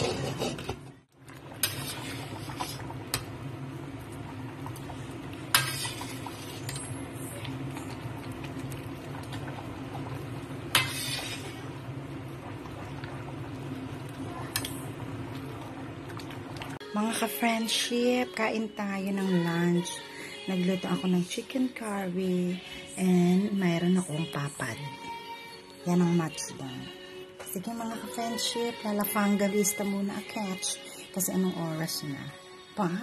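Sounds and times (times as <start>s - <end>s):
spatula stirring in a pan: 0.0s - 3.0s, 5.4s - 7.9s, 10.6s - 11.7s
curry simmering: 0.0s - 16.8s.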